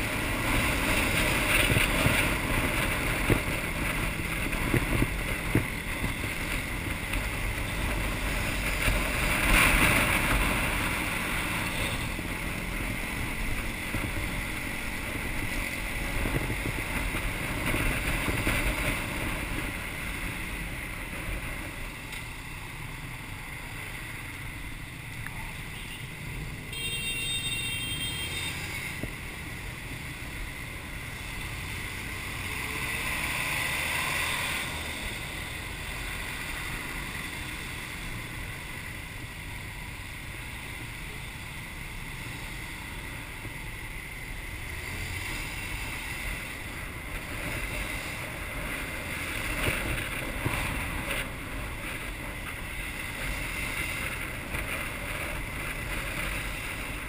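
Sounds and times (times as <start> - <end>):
traffic of scooters and cars: 0.0 - 57.0.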